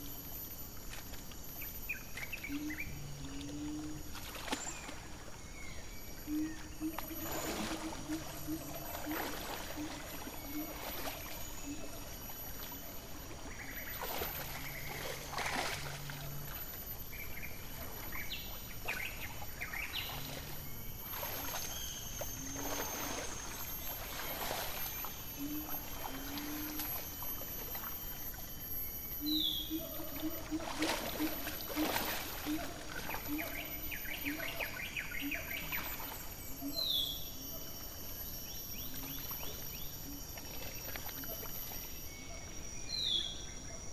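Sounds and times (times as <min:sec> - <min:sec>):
high insect drone: 0:00.0 - 0:43.9
mud sloshing and splashing: 0:04.1 - 0:05.2, 0:06.9 - 0:28.0, 0:29.9 - 0:34.8.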